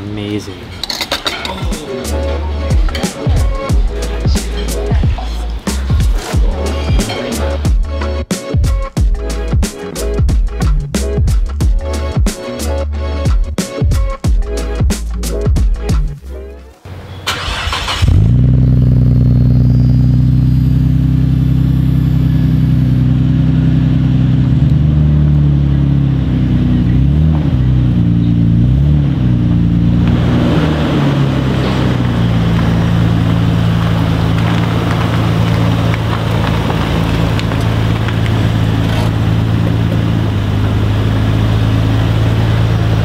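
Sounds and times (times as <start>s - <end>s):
car engine idling: 16.9s - 43.0s
engine hiss: 17.2s - 20.8s.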